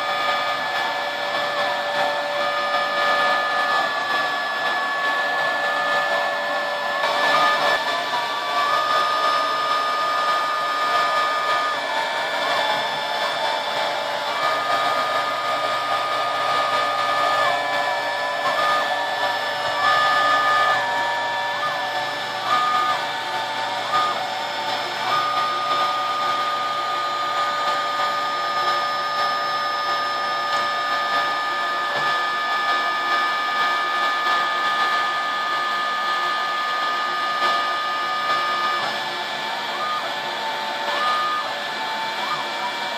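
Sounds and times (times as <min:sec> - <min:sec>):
router motor running: 0:00.0 - 0:42.9
whining tone stepping: 0:00.0 - 0:42.9.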